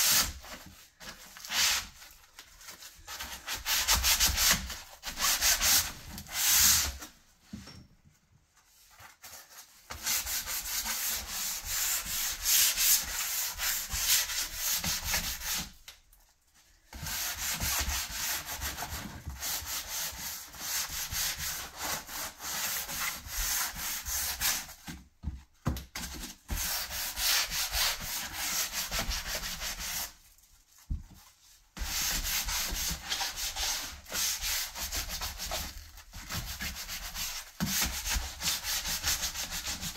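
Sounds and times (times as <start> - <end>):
sandpaper rubbing on painted wood: 9.6 - 15.8, 16.9 - 24.8, 26.5 - 30.2, 31.8 - 39.9.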